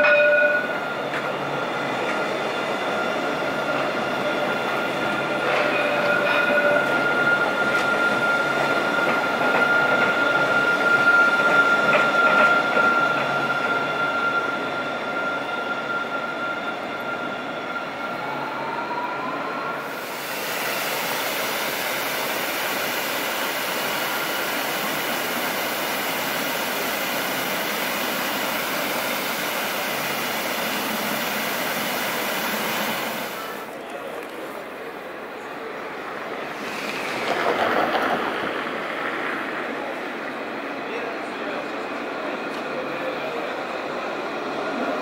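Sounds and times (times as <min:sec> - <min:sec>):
tram passing with high whine: 0:00.0 - 0:45.0.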